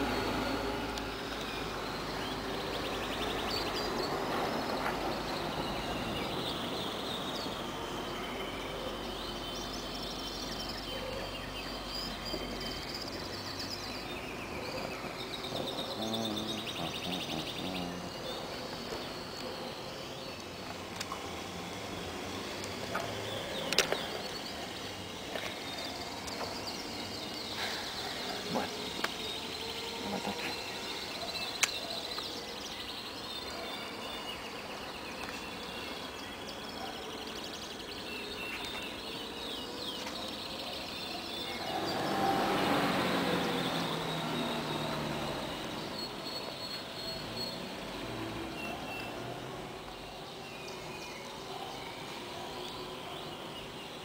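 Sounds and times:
vehicle passing: 41.5s - 46.2s.

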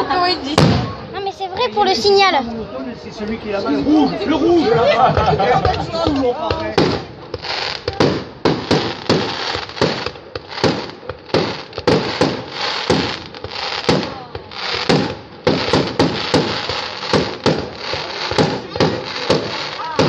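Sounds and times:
fireworks bangs: 0.4s - 1.7s, 5.0s - 20.0s
fireworks hissing: 6.0s - 20.0s.

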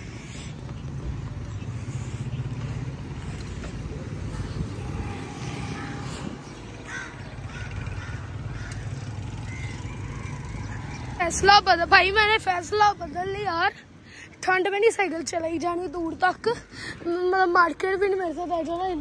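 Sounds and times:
bicycle tyre road noise: 0.0s - 13.2s
wind buffeting microphone: 0.5s - 13.6s.

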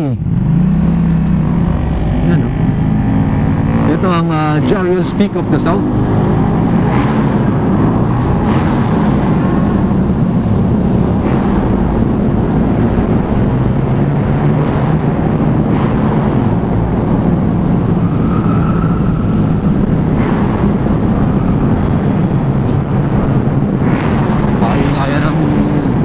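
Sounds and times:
motorcycle engine running: 0.0s - 26.0s
wind and road noise: 0.0s - 26.0s.

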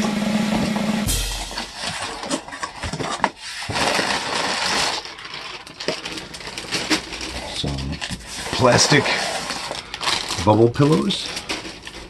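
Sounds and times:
steady low hum: 0.0s - 2.4s
plastic packing crinkling: 1.7s - 12.0s.

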